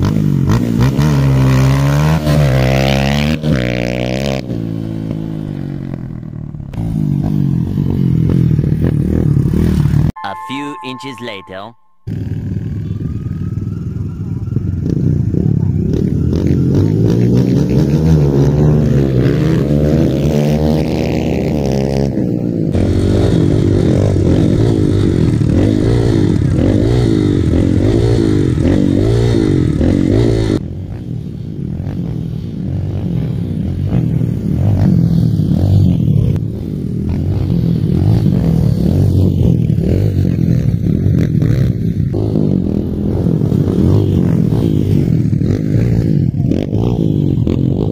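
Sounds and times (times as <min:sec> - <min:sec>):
dirt bike engines revving: 0:14.6 - 0:47.9.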